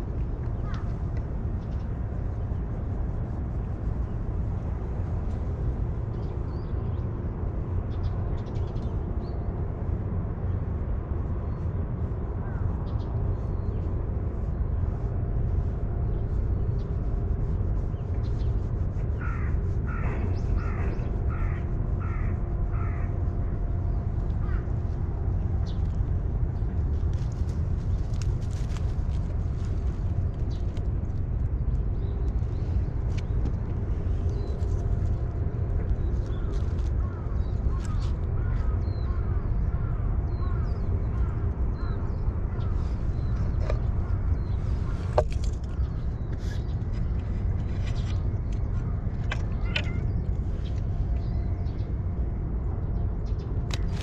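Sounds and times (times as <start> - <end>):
steady low rumble: 0.0 - 54.0
crow cawing: 19.2 - 23.1, 24.4 - 24.7, 37.8 - 40.7.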